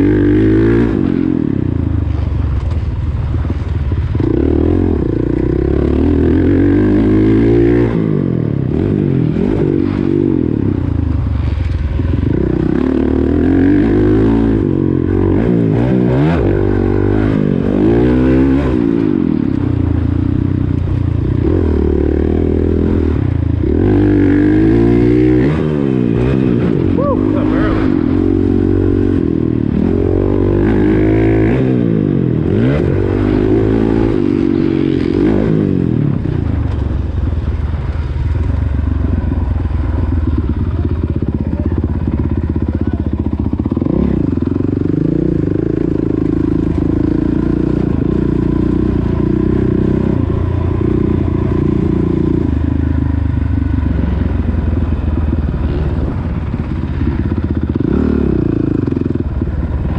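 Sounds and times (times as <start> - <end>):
dirt bike engine revving: 0.0 - 2.3, 3.5 - 36.9, 39.1 - 59.9.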